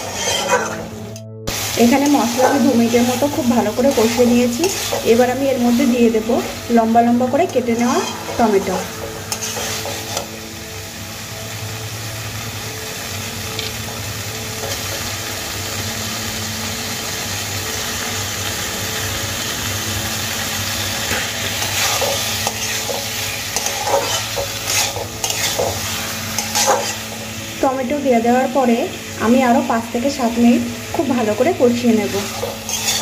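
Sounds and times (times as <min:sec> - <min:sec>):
metal spatula scraping pan: 0:00.0 - 0:00.9, 0:02.0 - 0:05.3, 0:07.4 - 0:10.3, 0:21.1 - 0:27.4, 0:32.1 - 0:33.0
food sizzling in hot oil: 0:00.0 - 0:33.0.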